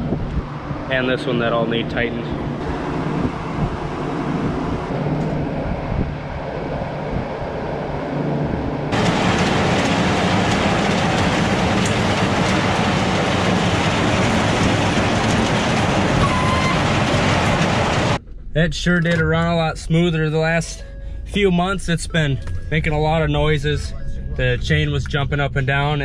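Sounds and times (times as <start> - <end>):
low mechanical hum: 0.0 - 26.0
chain conveyor rattling: 8.9 - 18.2.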